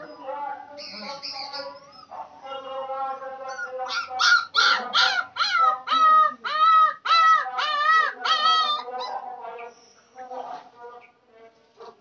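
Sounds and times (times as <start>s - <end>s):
puppy yelping: 3.5s - 9.1s.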